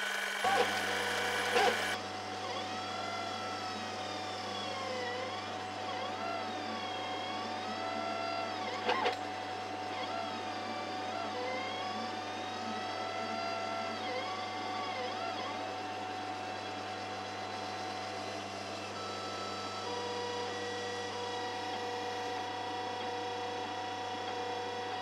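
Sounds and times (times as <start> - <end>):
stepper motors whining: 0.0 - 2.0, 6.7 - 9.2.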